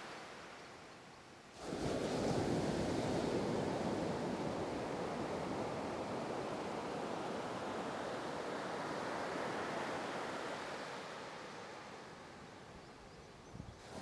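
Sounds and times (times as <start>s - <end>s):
ocean surf washing up beach: 1.5s - 12.7s.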